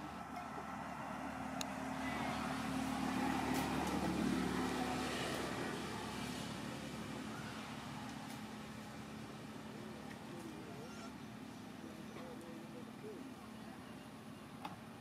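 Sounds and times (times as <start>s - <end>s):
vehicle engine passing by: 0.0s - 11.2s.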